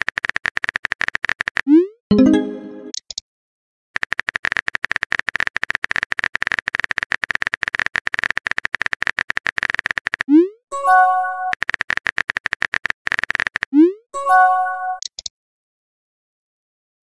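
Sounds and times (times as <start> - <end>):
rising message sent chirp: 2.1 - 2.9
phone keyboard clicking: 4.0 - 10.3, 11.5 - 13.8.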